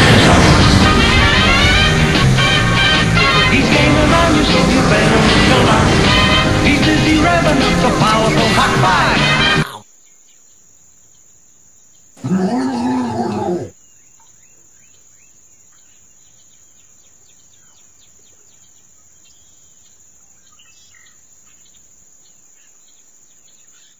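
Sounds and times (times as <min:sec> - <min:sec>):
person voicing monster growl: 0:12.2 - 0:13.7.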